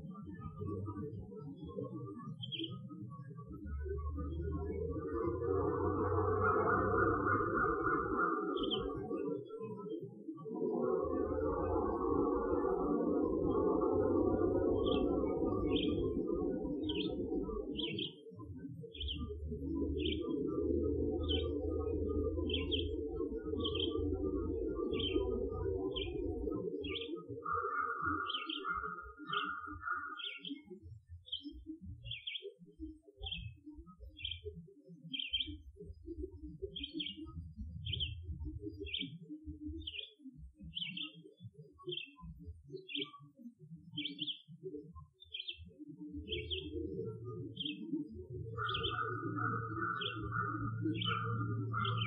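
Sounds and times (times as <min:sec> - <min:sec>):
songbird chirping: 0:13.4 - 0:18.2, 0:18.9 - 0:30.7, 0:45.2 - 0:52.0.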